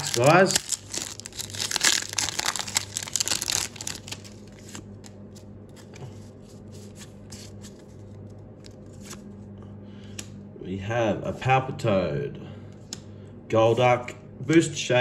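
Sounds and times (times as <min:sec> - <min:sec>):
foil wrapper crinkling and tearing: 0:00.0 - 0:05.1.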